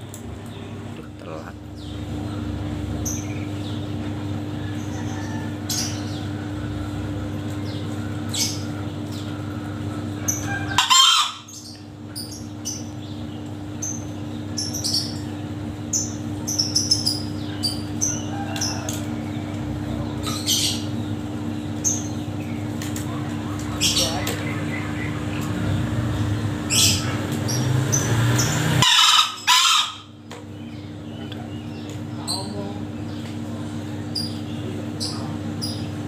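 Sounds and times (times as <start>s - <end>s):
steady low hum: 0.0s - 36.0s
junglefowl crowing: 4.3s - 7.1s, 10.0s - 11.8s, 17.3s - 20.9s, 28.6s - 30.2s.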